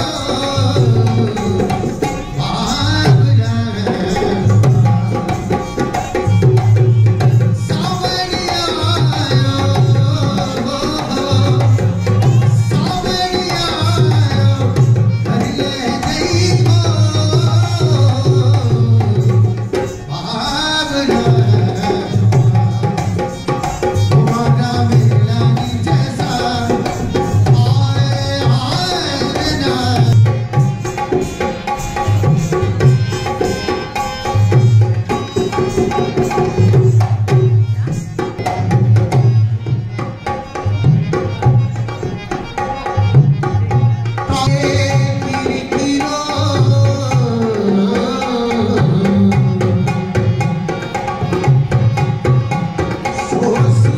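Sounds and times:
barrel drum beating rhythm: 0:00.0 - 0:53.9
person singing: 0:44.2 - 0:51.0, 0:51.8 - 0:53.9.

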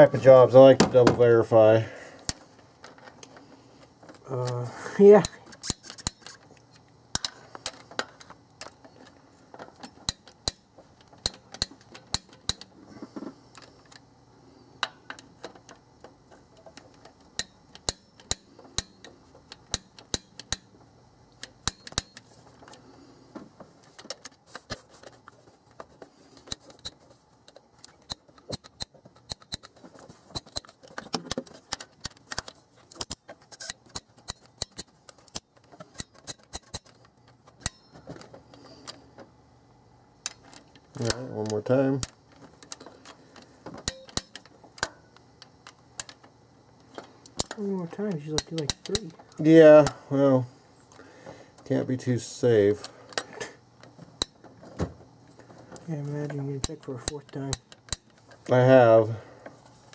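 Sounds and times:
torque wrench clicking: 0:17.3 - 0:20.7, 0:21.3 - 0:22.2, 0:48.2 - 0:50.0, 0:56.6 - 0:58.2.

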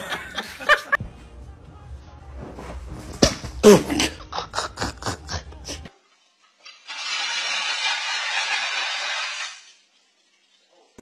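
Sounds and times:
woman laughing: 0:00.0 - 0:01.0.

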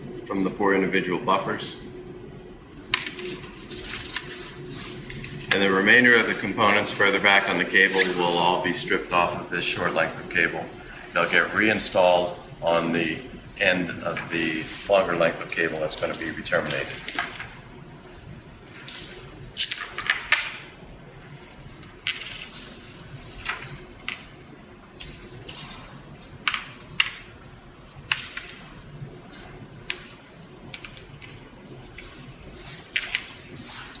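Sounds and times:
small metal parts clicking: 0:18.8 - 0:20.5, 0:25.0 - 0:25.8.

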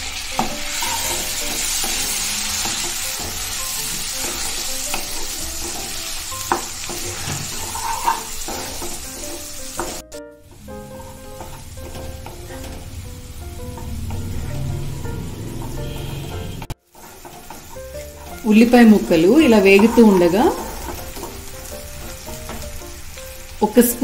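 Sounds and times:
onions sizzling in hot oil: 0:00.0 - 0:24.0
wooden spatula scraping pan: 0:00.4 - 0:10.2, 0:13.8 - 0:22.8.

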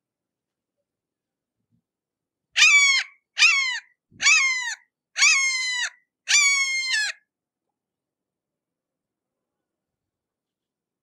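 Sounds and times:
hawk screaming calls: 0:02.6 - 0:07.2.

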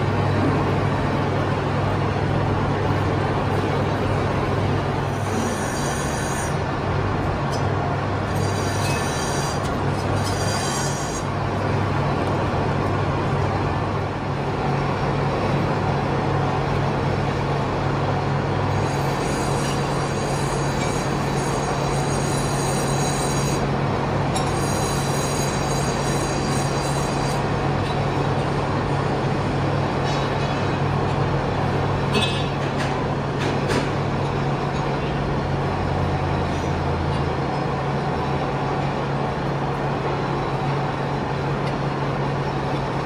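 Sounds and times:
high machine whine: 0:00.0 - 0:32.5
metalworking machine humming: 0:00.0 - 0:33.4.

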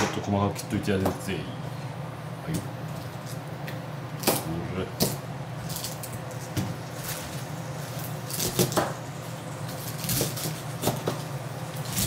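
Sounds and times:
knife cutting cabbage: 0:07.9 - 0:09.0, 0:09.7 - 0:12.0.

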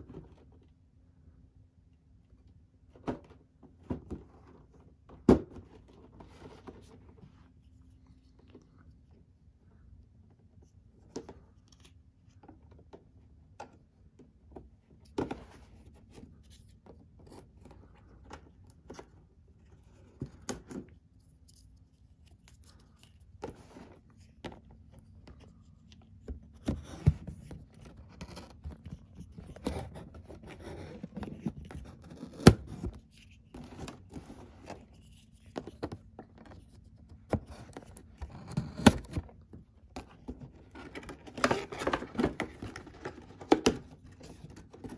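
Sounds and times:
cardboard and packaging rustling: 0:15.1 - 0:44.9
box cutter slitting cardboard: 0:29.5 - 0:33.0.

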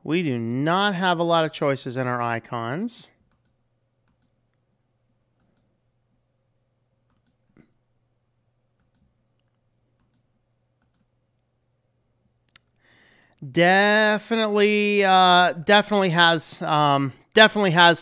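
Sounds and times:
low steady hum: 0:00.0 - 0:18.0
computer mouse clicks: 0:03.3 - 0:04.6, 0:05.4 - 0:05.7, 0:07.1 - 0:07.6, 0:08.8 - 0:11.1.

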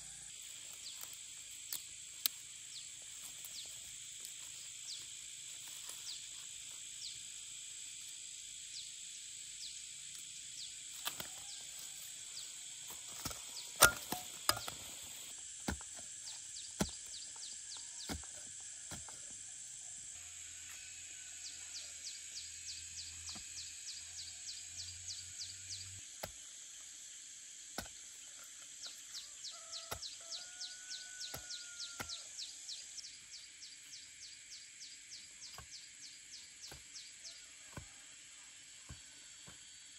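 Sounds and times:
insects chirping: 0:00.0 - 0:39.9
knocks and snaps in soil: 0:10.9 - 0:11.6, 0:12.8 - 0:19.2.

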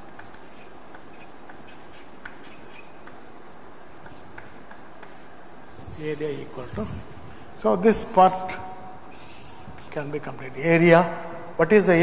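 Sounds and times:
chalk scratching on chalkboard: 0:00.0 - 0:03.4, 0:04.0 - 0:07.0, 0:09.2 - 0:10.1.

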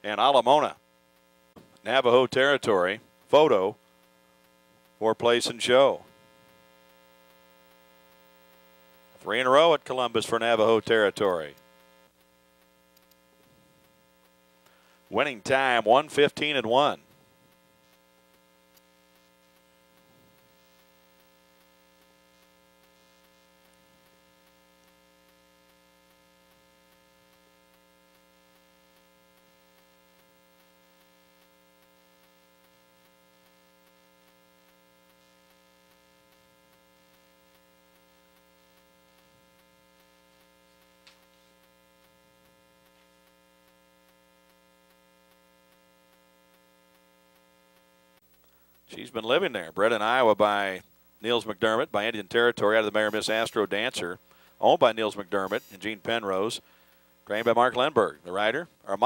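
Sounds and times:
faint electrical hum: 0:00.0 - 0:59.0
faint click: 0:13.0 - 0:13.2.

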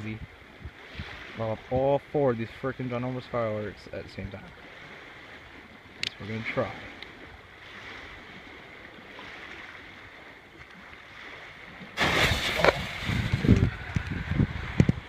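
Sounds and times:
firework mortar blast: 0:12.0 - 0:13.6
firework bangs and crackles: 0:12.0 - 0:13.7.

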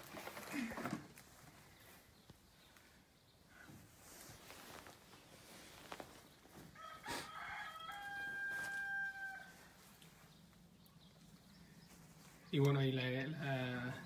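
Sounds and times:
rooster crowing: 0:06.7 - 0:09.8.

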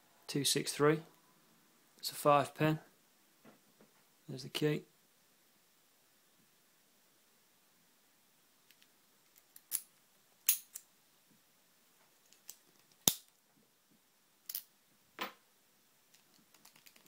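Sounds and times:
padlock metallic clicks and snaps: 0:08.7 - 0:10.9, 0:12.3 - 0:13.3.

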